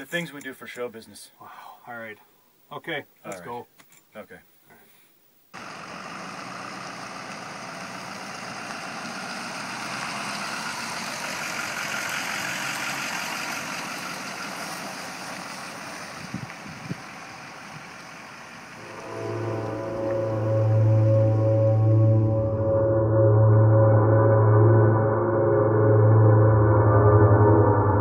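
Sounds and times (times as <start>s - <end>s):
pickup truck driving past: 5.6s - 22.8s
road noise: 5.6s - 25.8s.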